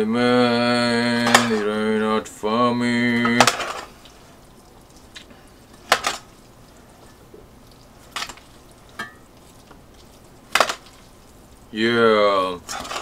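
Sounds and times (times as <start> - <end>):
utensils clinking on metal bowl: 1.2 - 1.7, 3.2 - 4.1, 5.7 - 6.4, 8.1 - 9.5, 10.5 - 11.1, 12.7 - 13.0.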